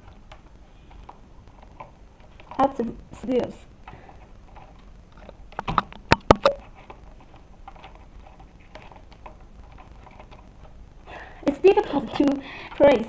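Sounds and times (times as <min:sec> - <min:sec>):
faint clicks and rustling: 0:00.0 - 0:13.0.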